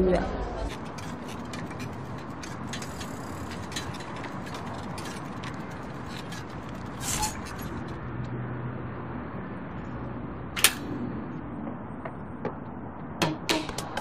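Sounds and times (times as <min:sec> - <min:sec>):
bicycle freewheel ticking: 0:00.7 - 0:07.1
bicycle clatter: 0:00.7 - 0:08.1.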